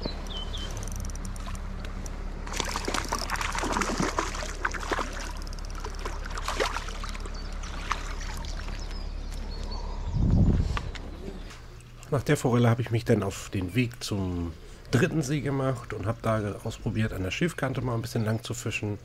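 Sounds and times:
steady low rumble: 0:00.0 - 0:19.0
water splashing and trickling: 0:00.6 - 0:01.8, 0:02.4 - 0:09.6.

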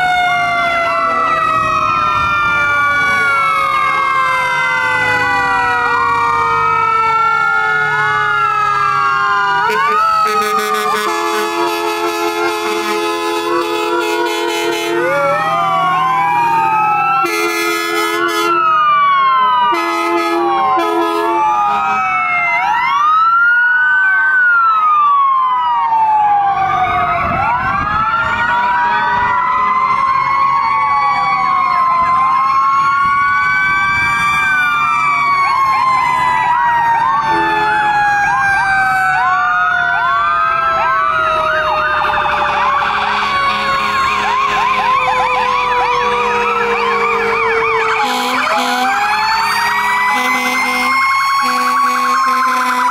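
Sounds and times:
emergency vehicle sirens: 0:00.0 - 0:52.9
horn blasts: 0:09.7 - 0:15.3, 0:17.2 - 0:18.6, 0:19.7 - 0:21.9, 0:42.3 - 0:44.4, 0:48.0 - 0:48.9, 0:50.2 - 0:52.9.

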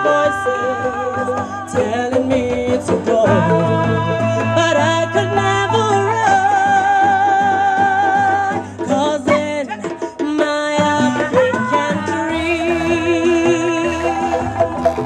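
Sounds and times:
marimba band playing: 0:03.0 - 0:06.0, 0:12.0 - 0:15.0
woman singing long wavering notes: 0:03.2 - 0:07.0, 0:11.6 - 0:15.0.

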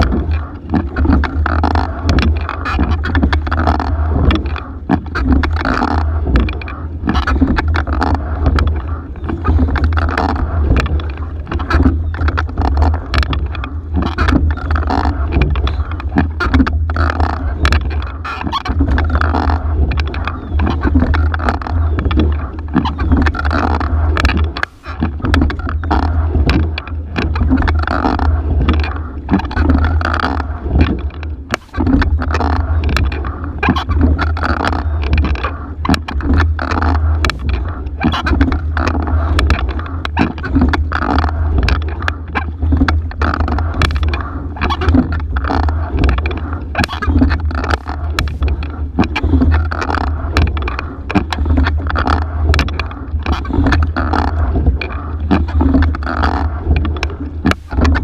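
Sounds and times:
oars clunking in oarlocks: 0:00.0 - 0:58.0
seat and rigging knocking: 0:00.0 - 0:58.0
steady low rumble: 0:00.0 - 0:58.0
water rushing along hull: 0:00.0 - 0:58.0.

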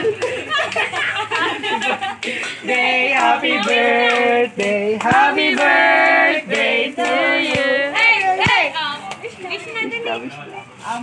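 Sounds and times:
men and women singing together: 0:01.8 - 0:08.7.

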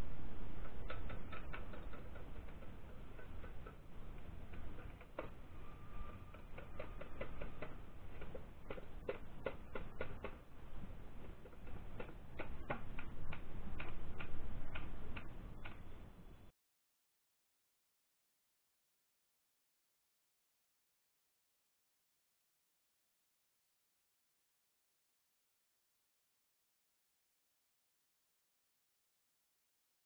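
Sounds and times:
low steady rumble: 0:00.0 - 0:16.5.

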